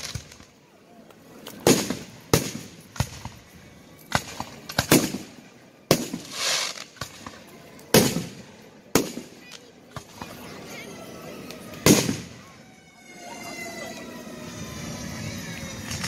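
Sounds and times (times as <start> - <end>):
firework bangs echoing: 1.6 - 3.4, 4.1 - 9.4, 11.8 - 12.4.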